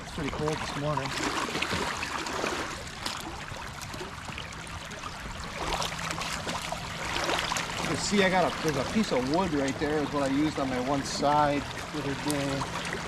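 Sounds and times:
boots splashing in water: 0.0s - 13.0s
creek water rushing: 4.6s - 13.0s.

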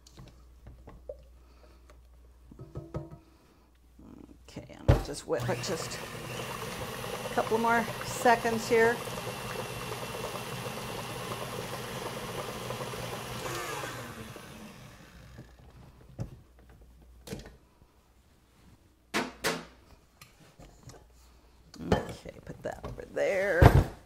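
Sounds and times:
stand mixer motor whirring: 5.4s - 15.6s.

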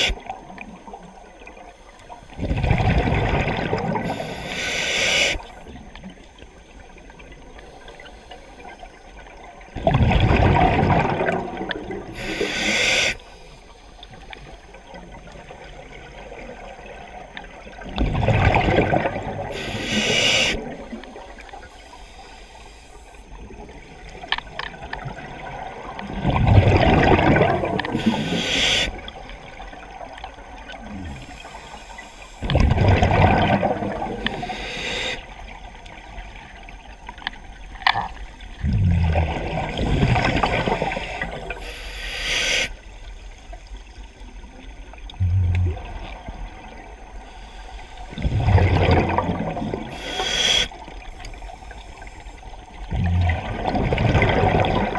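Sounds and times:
gurgling exhaust bubbles: 2.3s - 4.2s, 9.7s - 12.2s, 17.8s - 19.6s, 25.0s - 28.2s, 32.4s - 34.4s, 38.6s - 41.6s, 45.1s - 46.8s, 48.1s - 50.0s, 52.8s - 54.9s
regulator hiss: 4.0s - 5.6s, 12.1s - 14.0s, 19.5s - 20.7s, 21.7s - 23.5s, 27.9s - 29.0s, 31.1s - 32.4s, 34.2s - 35.5s, 40.6s - 44.0s, 49.9s - 52.6s.

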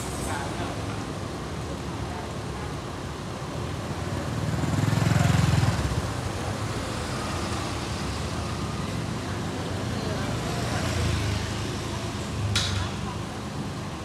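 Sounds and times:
street traffic hum: 0.0s - 14.0s
motorbike passing: 4.2s - 13.3s.

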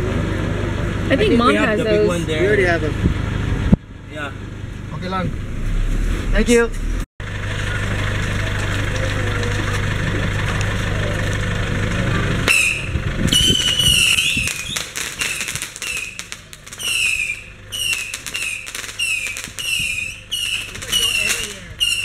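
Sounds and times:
firecrackers popping: 12.4s - 22.0s
high squeals dipping in pitch: 12.5s - 22.0s.

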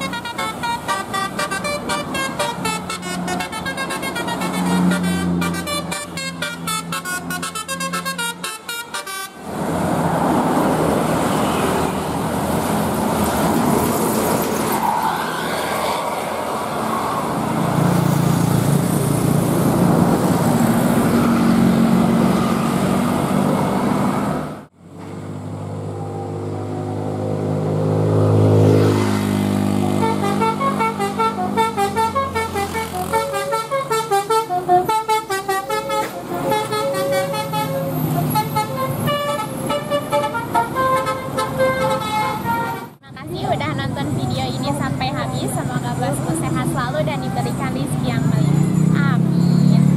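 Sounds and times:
bus horn playing a tune: 0.0s - 9.5s, 29.7s - 43.0s
bus passing: 0.0s - 49.9s
road traffic: 0.0s - 49.9s.

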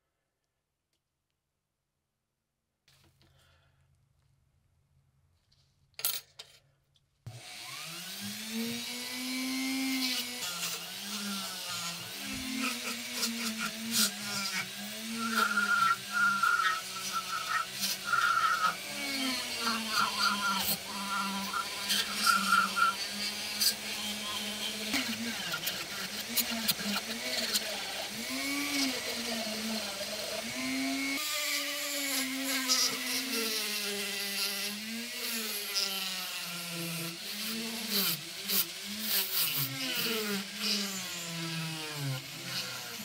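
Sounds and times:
rotary tool motor whine: 7.3s - 43.0s
abrasive wheel scratching metal: 13.2s - 24.6s.

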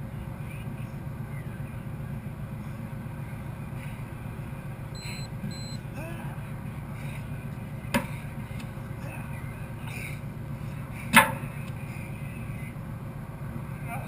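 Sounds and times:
steady low rumble: 0.0s - 14.0s
short electronic timer beeps: 5.0s - 5.8s.

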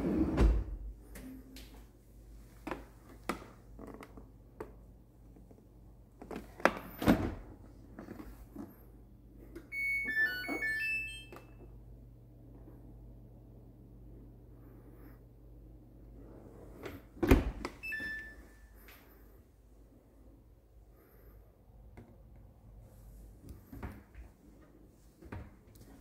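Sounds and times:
electronic start-up beeps: 9.8s - 11.4s.

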